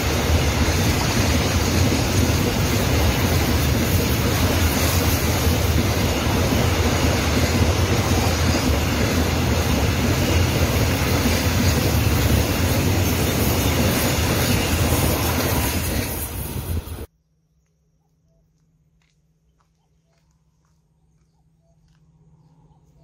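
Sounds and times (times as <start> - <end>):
freight train wheels rumbling on rails: 0.0 - 17.1.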